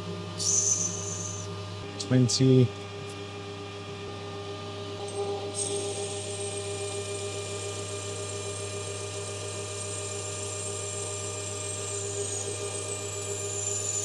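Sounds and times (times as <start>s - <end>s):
lathe running hum: 0.0s - 14.0s
high-pitched cutting whine: 0.3s - 2.1s, 4.9s - 14.0s.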